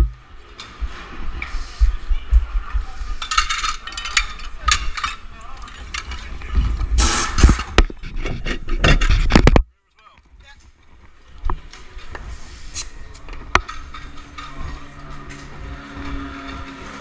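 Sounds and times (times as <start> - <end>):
clatter and knocks: 3.3 - 9.7, 13.3 - 17.0
loud noisy bursts: 7.0 - 7.6.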